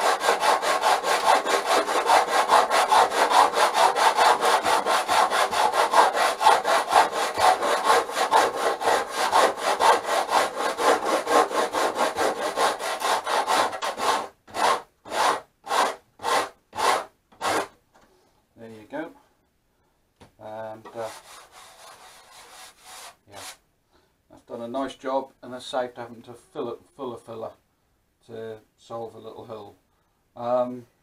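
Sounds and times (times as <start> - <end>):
sandpaper scraping wood: 0.0 - 17.7, 20.9 - 23.6.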